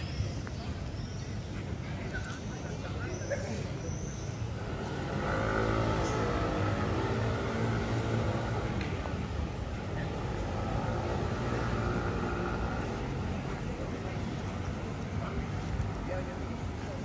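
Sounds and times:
vehicle engine passing: 0:04.6 - 0:15.0.

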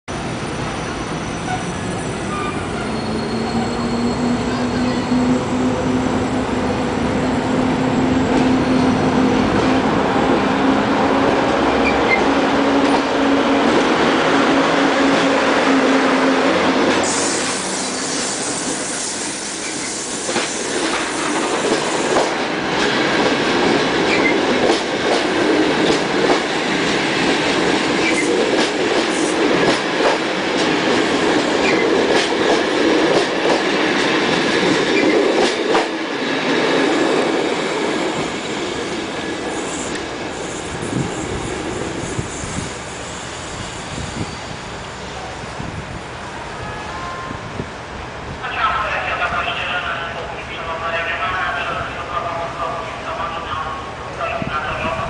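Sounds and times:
electric locomotive humming: 0:00.2 - 0:55.0
locomotive hiss: 0:17.0 - 0:22.0.

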